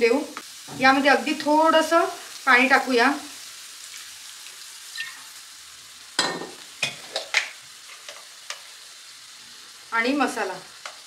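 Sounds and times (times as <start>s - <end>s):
prawns sizzling in hot oil: 0.0s - 11.0s.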